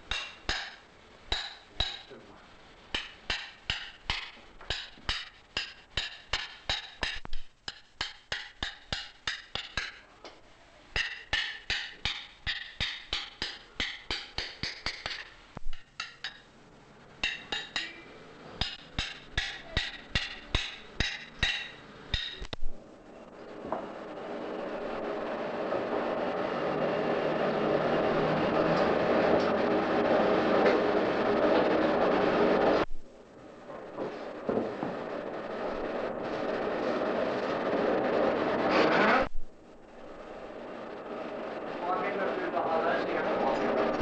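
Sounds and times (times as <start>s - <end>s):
hammer striking anvil: 0.0s - 2.2s, 2.9s - 10.0s, 11.0s - 16.5s, 17.2s - 22.6s.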